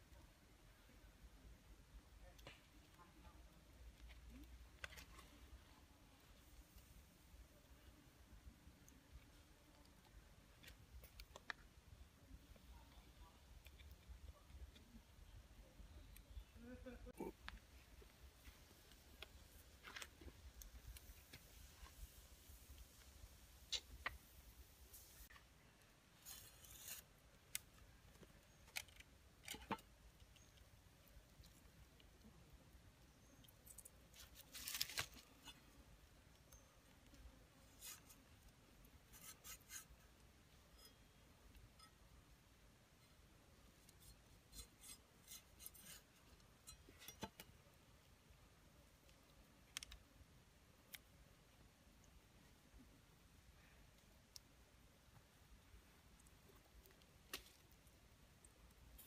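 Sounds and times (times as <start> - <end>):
cleaver slicing through lime: 26.3 - 27.0.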